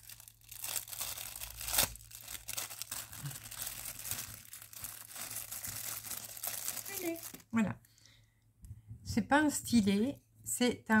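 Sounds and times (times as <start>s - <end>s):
packaging tearing and crinkling: 0.0s - 7.4s.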